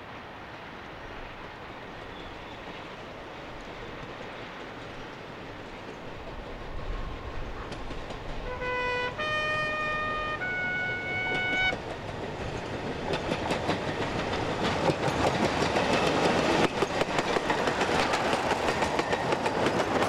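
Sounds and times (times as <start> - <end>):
train wagons rumbling on track: 1.2 - 20.0
two-note train horn: 8.4 - 11.8.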